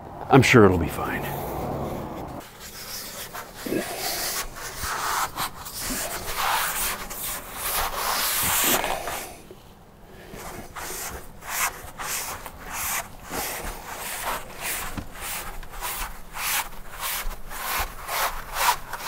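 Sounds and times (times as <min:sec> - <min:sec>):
hands rubbing foam panel: 0:10.4 - 0:19.0.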